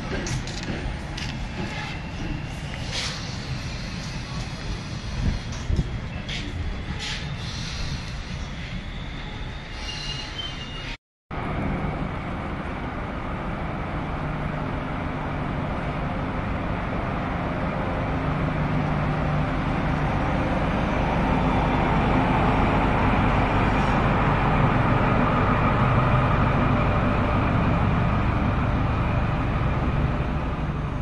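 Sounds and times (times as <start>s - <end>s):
train rolling rumble: 0.0s - 31.0s.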